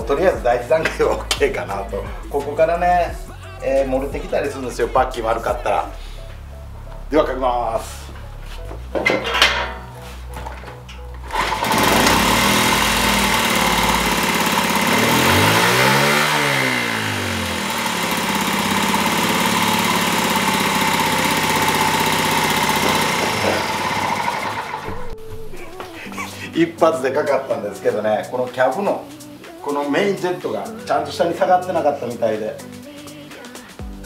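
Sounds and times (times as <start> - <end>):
small engine starting and running: 11.2 - 25.2.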